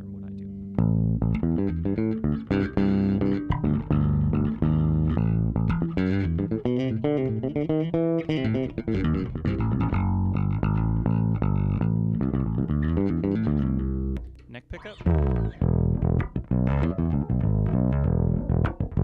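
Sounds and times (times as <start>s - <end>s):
electric bass line: 0.0s - 19.0s.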